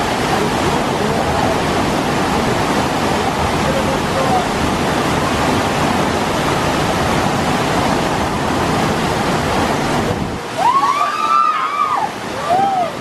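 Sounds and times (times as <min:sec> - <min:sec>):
rushing white water: 0:00.0 - 0:13.0.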